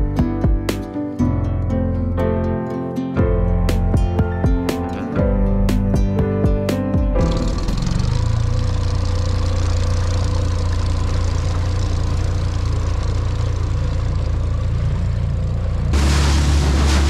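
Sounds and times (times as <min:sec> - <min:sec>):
outboard motor running: 0:07.2 - 0:17.0.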